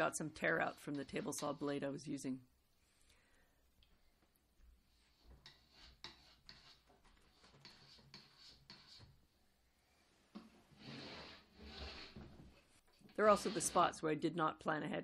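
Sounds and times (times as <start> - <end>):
putty knife scraping wood: 4.9 - 9.2, 10.7 - 13.9.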